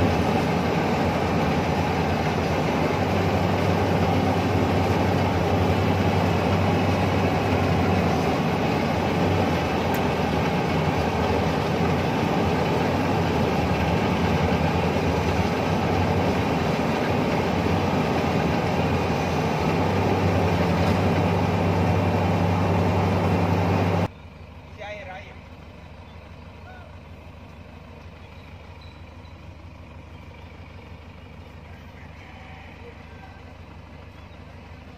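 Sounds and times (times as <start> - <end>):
combine harvester clatter: 0.0 - 34.9
low engine hum: 0.0 - 34.9.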